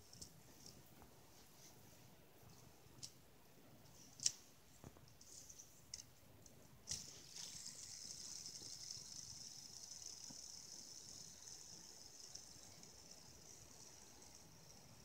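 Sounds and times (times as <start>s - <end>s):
fidget spinner clicks: 6.8s - 15.0s
spinner bearing whirring: 6.9s - 15.0s.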